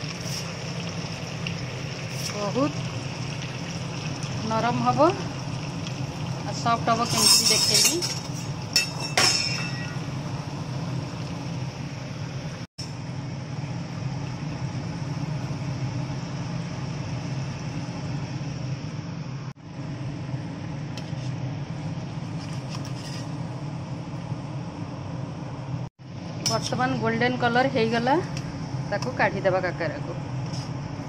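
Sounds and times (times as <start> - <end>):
oil sizzling while deep-frying: 0.0 - 31.0
metal clink: 7.1 - 10.0.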